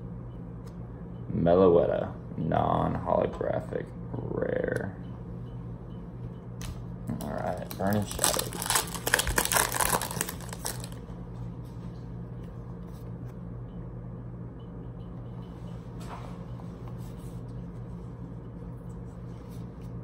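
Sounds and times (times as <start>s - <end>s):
ceiling fan humming: 0.0s - 20.0s
trading cards rustling: 7.2s - 11.0s.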